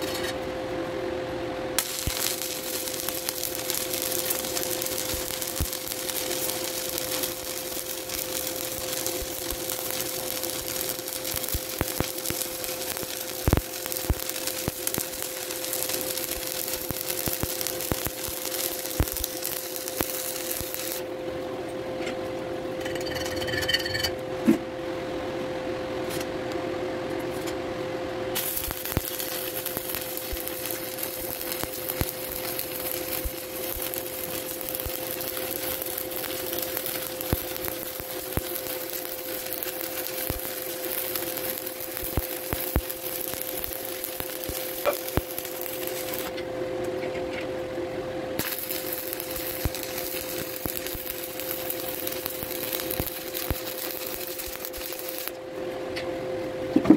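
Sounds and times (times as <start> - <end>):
steady hum: 0.0 - 56.9
welding arc crackling and hissing: 1.8 - 21.2, 28.3 - 46.5, 48.4 - 55.4.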